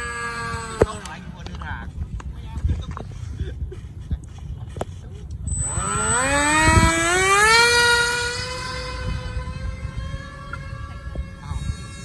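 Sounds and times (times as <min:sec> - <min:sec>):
model plane motor whine: 0:00.0 - 0:01.7, 0:04.6 - 0:12.0.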